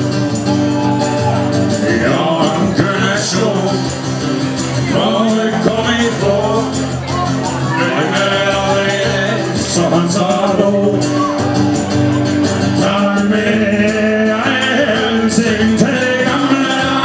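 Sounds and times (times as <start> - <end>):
acoustic guitar: 0.0 - 17.0
percussion steady beat: 0.0 - 17.0
male voices singing: 0.9 - 17.0.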